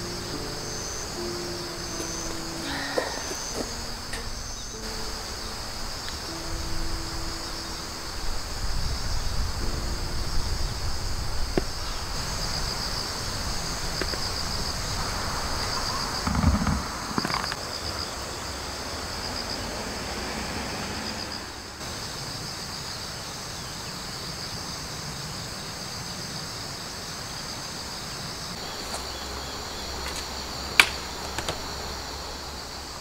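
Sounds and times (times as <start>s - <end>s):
crickets and insects trilling: 0.0s - 33.0s
camp chair click: 28.7s - 29.2s, 30.0s - 31.6s.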